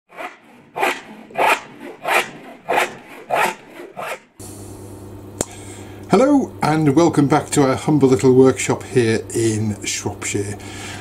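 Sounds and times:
hand tool scraping wood: 0.1s - 4.4s.

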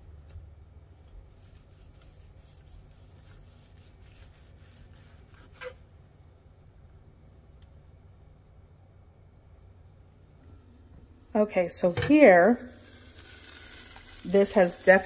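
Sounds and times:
knife slicing ham: 1.3s - 5.8s.

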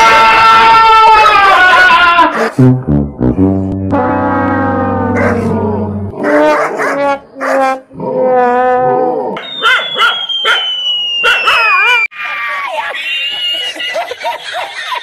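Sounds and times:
steady low tone: 2.6s - 6.2s
dog barking and yelping: 5.2s - 5.5s, 6.2s - 7.6s, 9.6s - 10.6s, 11.2s - 12.1s
long falling whistle: 9.4s - 12.1s.

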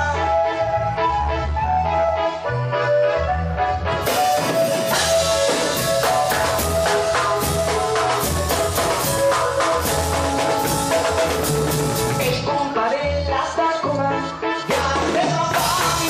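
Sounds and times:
held melody notes: 0.0s - 12.6s
drum kit beat: 3.9s - 12.6s, 14.7s - 16.0s.

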